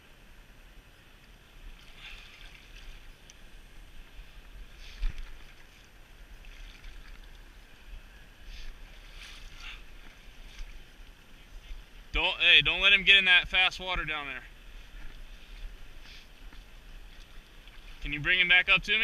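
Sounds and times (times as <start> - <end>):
wind rumbling on microphone: 0.0 - 12.8
river water running: 0.0 - 19.0.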